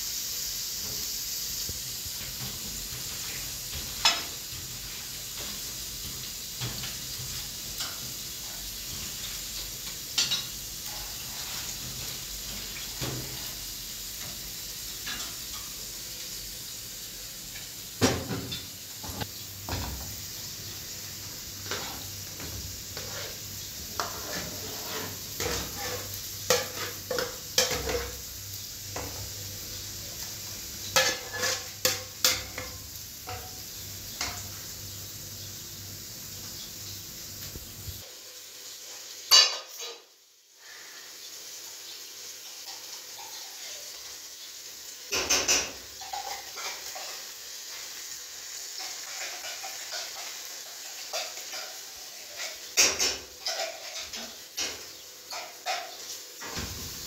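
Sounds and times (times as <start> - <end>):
steady hiss: 0.0 - 57.0
pans clinking and knocking: 2.2 - 8.3, 9.9 - 13.5, 18.0 - 20.3, 21.6 - 28.3, 30.8 - 34.6, 39.3 - 40.1, 45.1 - 47.3, 48.7 - 57.0.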